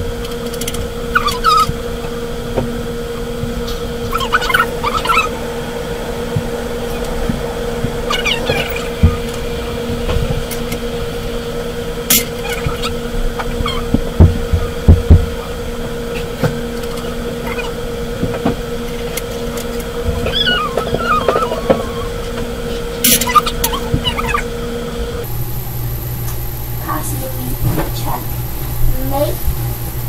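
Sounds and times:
steady low hum: 0.0 - 30.0
dull thumps: 12.3 - 16.7.

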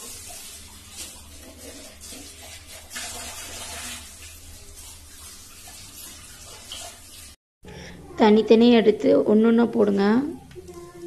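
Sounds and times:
batter sizzling in hot oil: 0.0 - 7.4.

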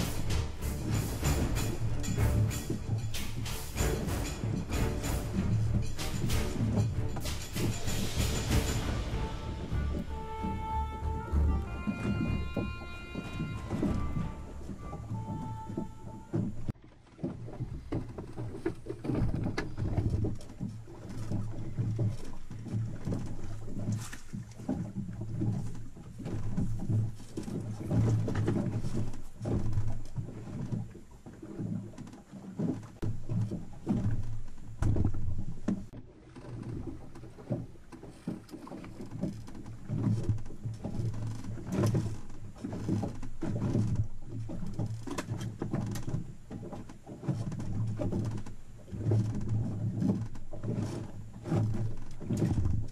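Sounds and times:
low steady hum: 0.0 - 16.8
water noise: 0.0 - 52.9
wind: 0.0 - 52.9.

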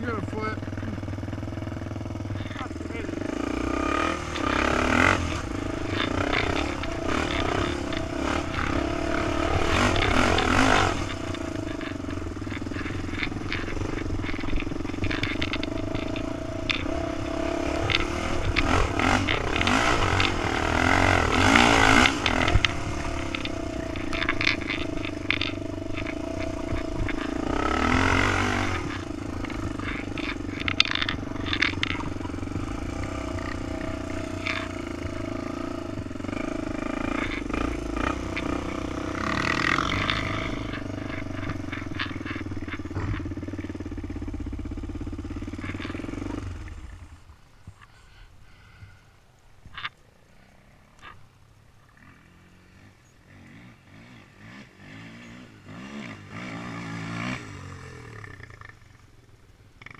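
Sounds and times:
quad engine revving: 0.0 - 49.0, 52.0 - 59.9
machine clattering and rattling: 3.9 - 43.8.

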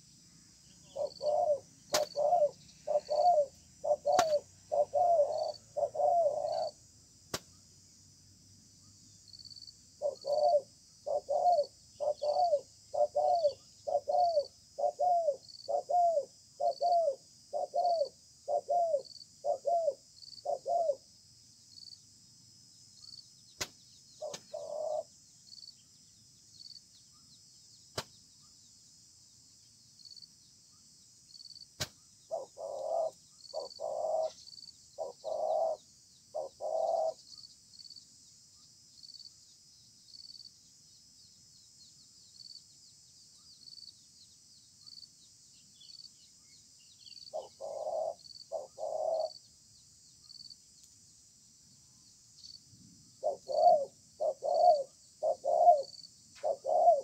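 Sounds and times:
faint chirp: 0.0 - 6.8, 8.6 - 22.0, 22.7 - 57.0
steady high hiss: 0.0 - 56.5
dove cooing: 0.8 - 6.8, 10.0 - 21.0, 24.2 - 25.1, 32.3 - 37.2, 47.3 - 49.4, 53.2 - 57.0.

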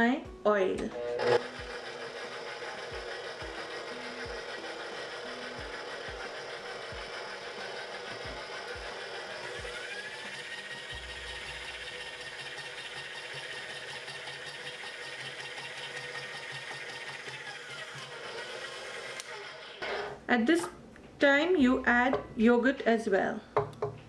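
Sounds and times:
high motor whine: 0.9 - 12.9
stand mixer kneading dough: 1.0 - 19.8.

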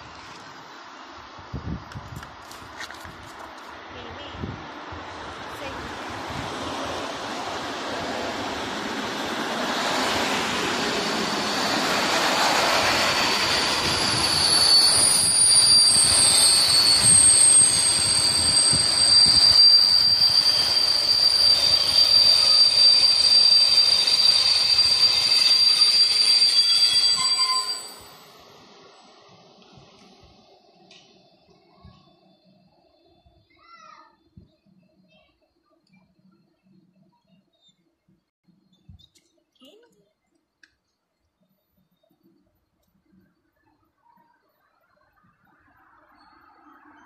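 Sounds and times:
train passing rumble: 0.0 - 33.5
high squeal: 8.4 - 29.2.

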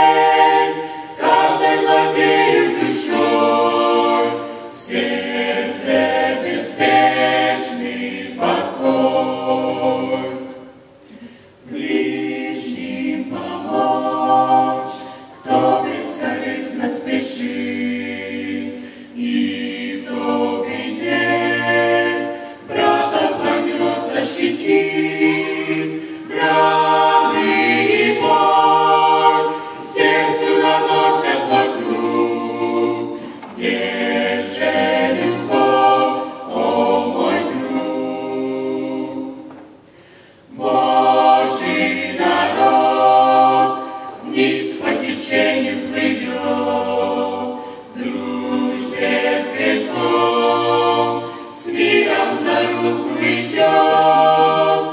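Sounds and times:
group singing a cappella: 0.0 - 54.9.

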